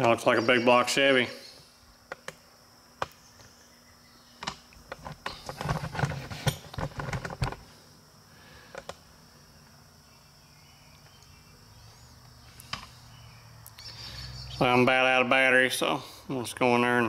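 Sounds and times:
handling clicks and knocks: 4.4 - 7.6.

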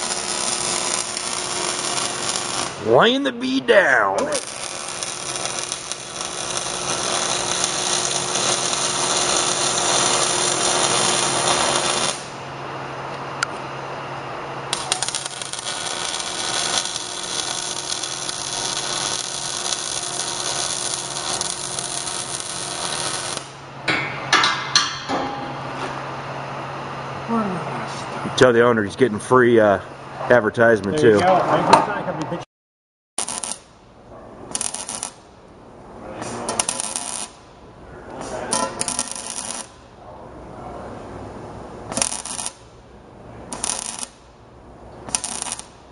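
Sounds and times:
welder arc crackling: 0.0 - 3.6, 4.2 - 12.4, 14.7 - 23.6, 33.2 - 33.7, 34.5 - 35.3, 36.4 - 37.5, 38.2 - 39.8, 41.9 - 42.7, 43.5 - 44.3, 45.0 - 45.9
steady low hum: 0.0 - 30.8, 33.7 - 45.9.

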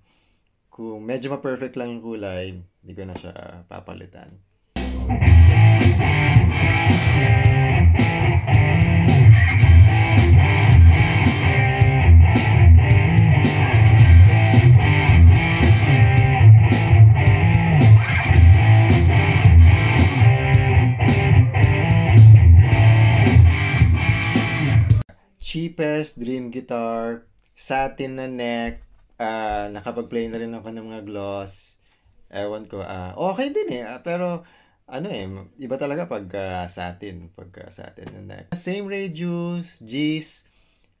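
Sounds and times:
electric guitar hard rock rhythm: 4.8 - 25.0.

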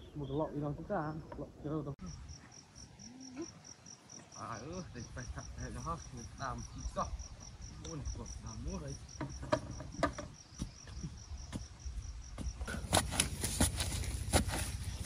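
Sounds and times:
insect chirping: 0.0 - 15.0
sharp clicks and knocks: 9.2 - 11.6.

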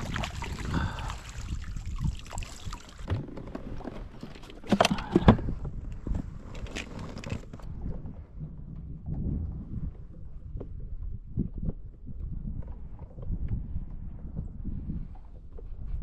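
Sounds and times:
knocks and rattles of fishing gear: 2.9 - 14.5.

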